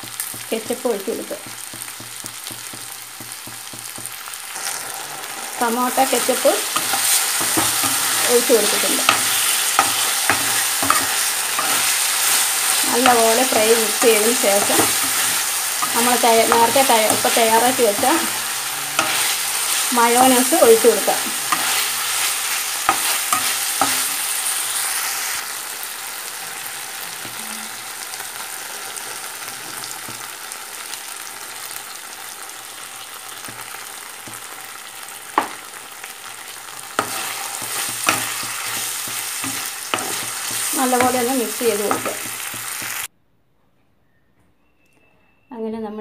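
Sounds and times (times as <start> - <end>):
chicken sizzling in frying pan: 0.0 - 43.1
spatula knocking against pan: 1.4 - 4.2.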